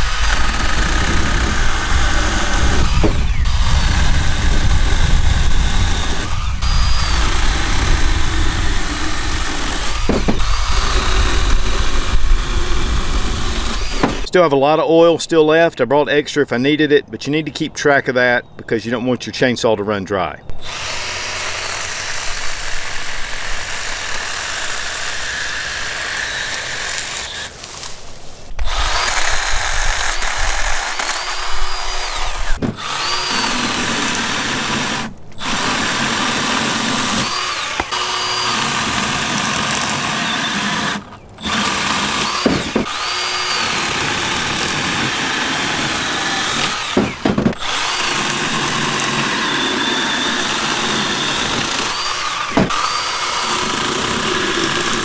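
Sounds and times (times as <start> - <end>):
chainsaw cutting wood: 0.0 - 14.3, 20.5 - 55.0
motor whine spinning up: 0.0 - 14.3.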